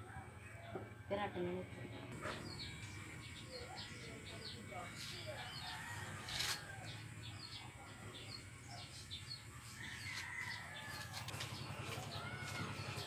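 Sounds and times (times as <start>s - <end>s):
birds chirping: 1.9s - 13.0s
electric hair clippers buzzing: 2.7s - 7.6s.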